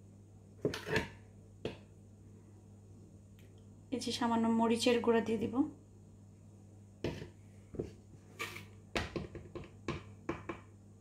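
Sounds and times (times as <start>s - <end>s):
faint steady hum: 0.0s - 11.0s
metal spoon knocking and scraping: 0.6s - 1.2s.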